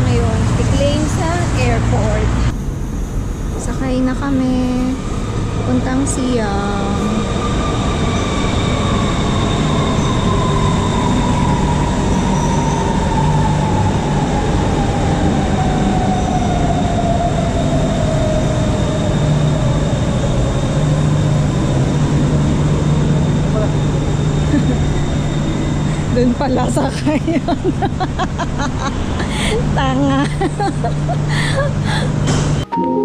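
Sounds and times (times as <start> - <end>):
wheels rumbling on rail: 0.0 - 32.6
electric train motor whine: 4.8 - 28.1.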